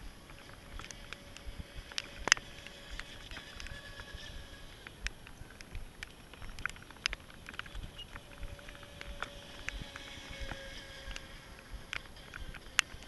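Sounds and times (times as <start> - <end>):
distant electric motor whine: 0.0 - 13.0
sharp ticks and taps: 4.8 - 13.0.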